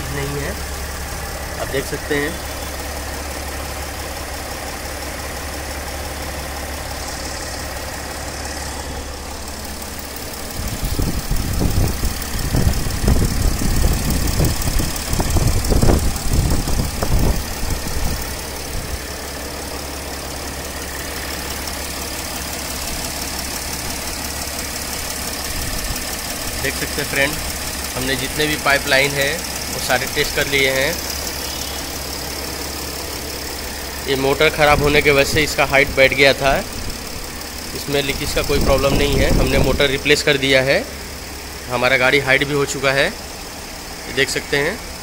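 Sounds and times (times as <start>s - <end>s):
diesel engine idling: 0.0s - 45.0s
low rumbling and thumps: 6.2s - 19.4s.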